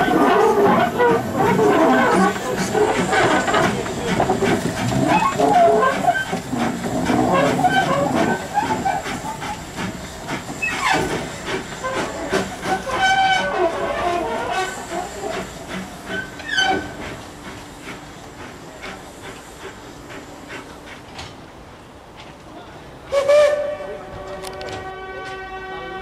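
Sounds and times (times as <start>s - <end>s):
wheels clattering over rail joints: 0.0s - 17.2s
steam hissing: 0.0s - 21.8s.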